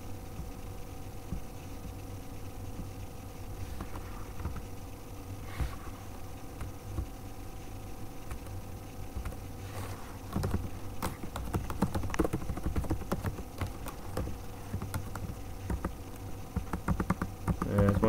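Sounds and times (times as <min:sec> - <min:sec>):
low hum: 0:00.0 - 0:17.7
keyboard typing clicks: 0:10.3 - 0:16.0, 0:16.6 - 0:18.0.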